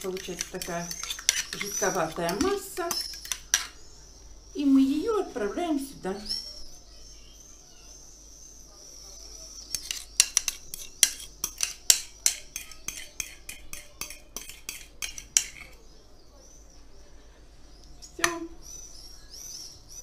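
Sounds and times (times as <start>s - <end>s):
cutlery clinking against dishes: 0.0s - 3.8s, 9.7s - 15.8s.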